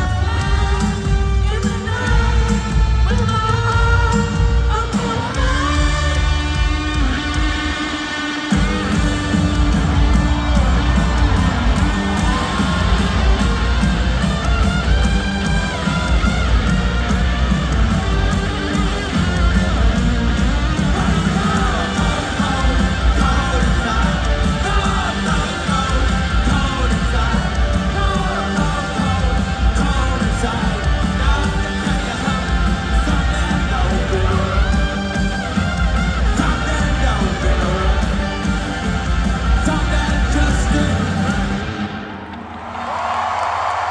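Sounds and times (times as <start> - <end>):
person singing: 0.0 - 14.0, 20.6 - 35.3, 35.9 - 41.9
bass guitar: 0.0 - 42.3
drums: 0.0 - 43.9
electric guitars: 0.0 - 43.9
rock band playing loudly: 0.0 - 43.9.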